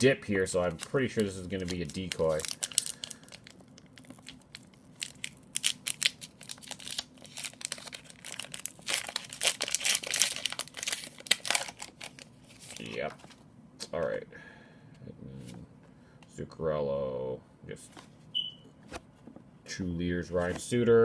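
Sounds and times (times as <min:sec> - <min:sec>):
plastic wrapper crinkling: 0:00.6 - 0:13.4.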